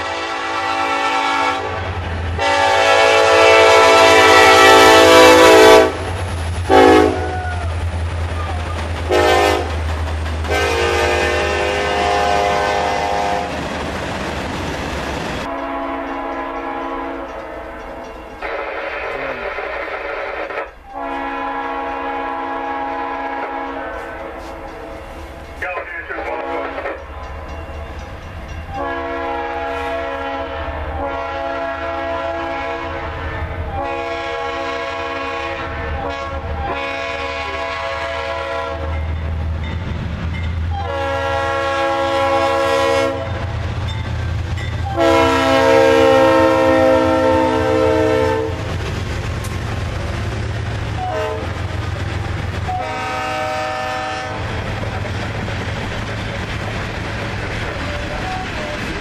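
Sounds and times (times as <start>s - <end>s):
locomotive air horn blasts: 0.0s - 6.1s, 6.7s - 7.4s, 9.1s - 9.8s, 10.5s - 13.5s, 15.5s - 17.4s, 18.4s - 24.7s, 28.7s - 39.0s, 40.7s - 43.5s, 44.8s - 48.7s, 51.0s - 51.6s, 52.7s - 54.5s
train wheels clattering on rails: 3.9s - 20.8s, 21.7s - 30.3s, 38.8s - 41.1s, 43.2s - 59.0s.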